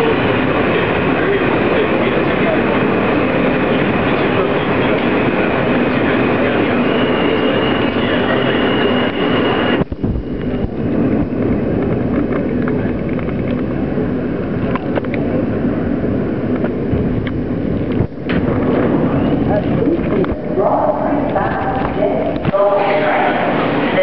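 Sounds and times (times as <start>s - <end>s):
high steady whine: 0.0s - 24.0s
subway car rumble: 0.0s - 24.0s
sharp clicks and rattles: 9.8s - 13.7s.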